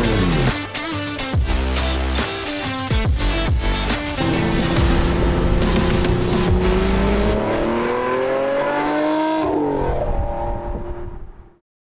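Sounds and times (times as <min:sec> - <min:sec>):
car engine accelerating: 0:03.8 - 0:11.3.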